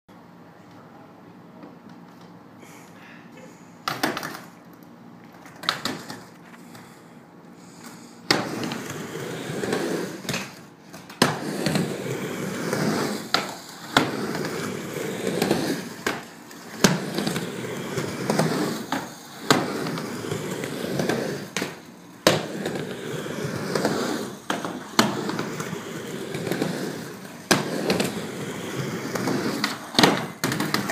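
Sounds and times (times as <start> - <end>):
small wheels rolling on hard ground: 11.3 - 30.9.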